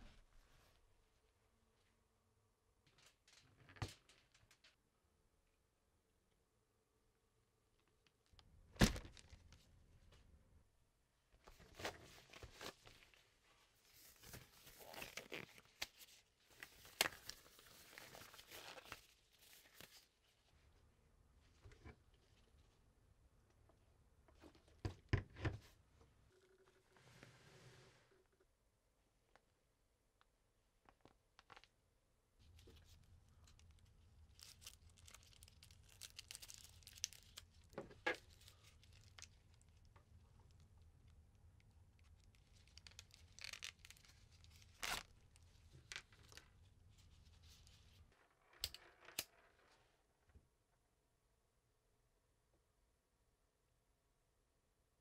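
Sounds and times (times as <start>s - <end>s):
glove crinkling and snapping: 8.3s - 9.7s, 14.0s - 20.1s, 32.5s - 46.6s.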